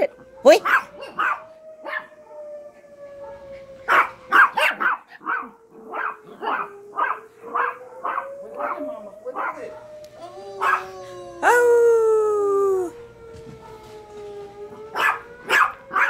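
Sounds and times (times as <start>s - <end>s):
alarm siren: 0.0s - 16.0s
small dogs barking: 0.4s - 2.2s, 3.2s - 10.0s, 10.6s - 10.9s, 14.9s - 16.0s.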